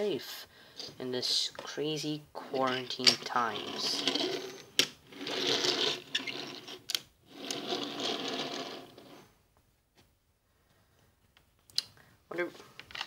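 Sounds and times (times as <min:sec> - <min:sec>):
toy train wheels whirring on wood: 0:02.7 - 0:09.2.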